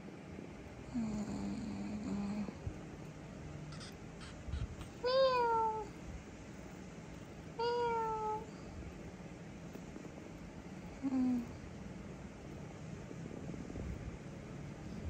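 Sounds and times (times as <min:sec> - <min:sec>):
kitten meowing: 0:03.7 - 0:05.9.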